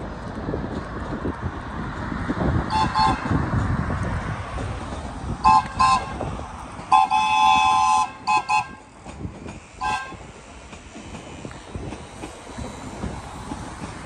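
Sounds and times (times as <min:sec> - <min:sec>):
train horn toots and blasts: 0:02.7 - 0:03.3, 0:05.4 - 0:06.3, 0:06.9 - 0:08.9, 0:09.8 - 0:10.3.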